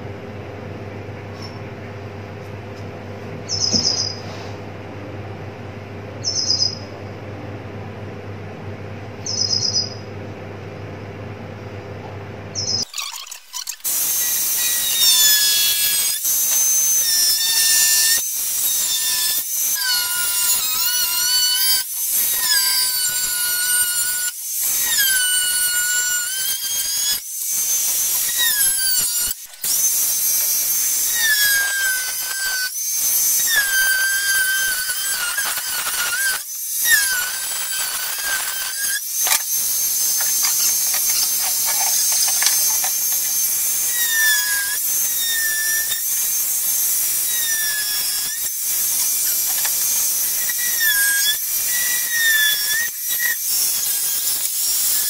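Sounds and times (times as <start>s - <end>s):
angle grinder cutting plywood: 12.6s - 55.0s.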